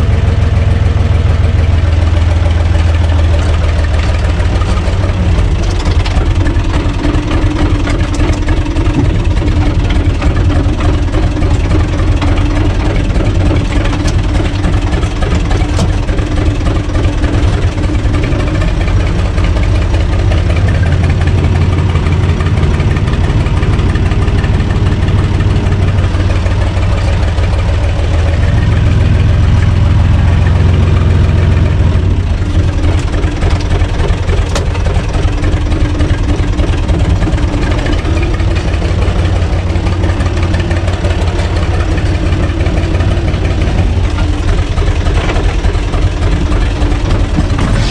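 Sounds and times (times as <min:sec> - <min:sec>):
tractor diesel engine running: 0:00.0 - 0:47.9.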